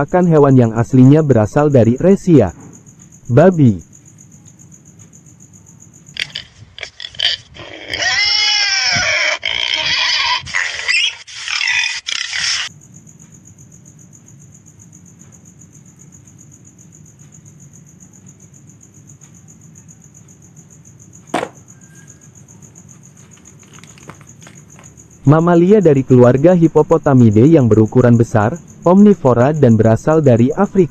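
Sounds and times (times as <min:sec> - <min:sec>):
crickets chirring: 0:00.0 - 0:30.9
pig squealing: 0:06.2 - 0:12.7.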